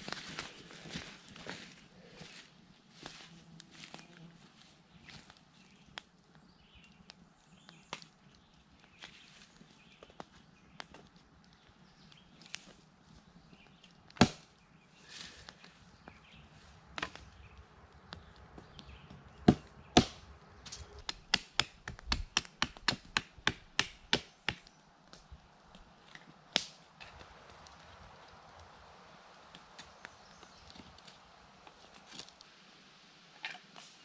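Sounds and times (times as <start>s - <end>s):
blade chopping into wood: 14.2s - 14.4s.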